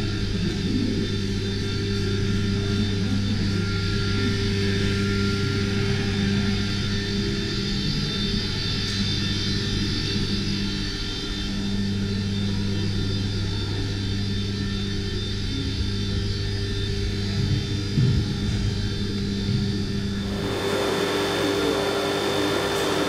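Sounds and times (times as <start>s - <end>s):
racing car engine droning: 17.6s - 23.0s.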